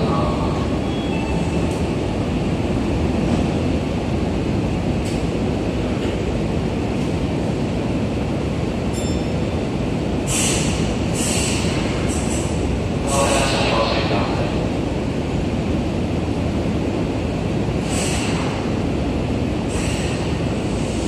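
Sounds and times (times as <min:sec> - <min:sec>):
train and station low rumble: 0:00.0 - 0:21.0
short hisses: 0:10.3 - 0:12.5, 0:17.8 - 0:18.6, 0:19.7 - 0:21.0.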